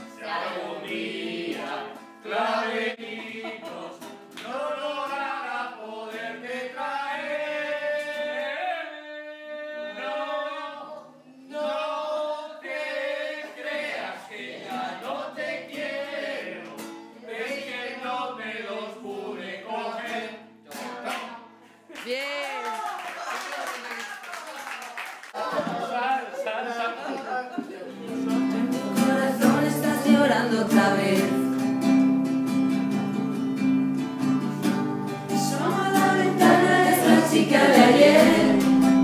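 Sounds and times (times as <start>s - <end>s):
group of men singing: 0.0s - 21.2s, 28.1s - 31.5s, 35.3s - 39.0s.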